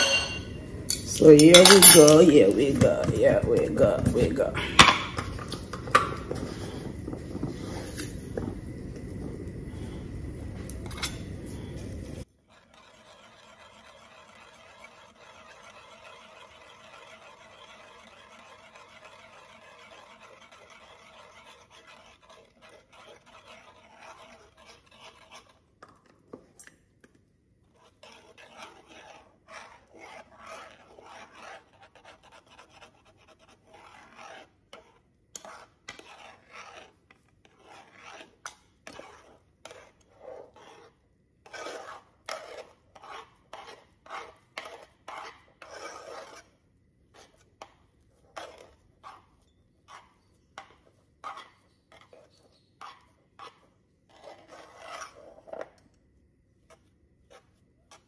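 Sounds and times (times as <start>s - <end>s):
metal spoon scraping a metal pot: 0.0s - 5.6s, 12.5s - 25.6s, 27.6s - 46.5s, 47.2s - 55.8s.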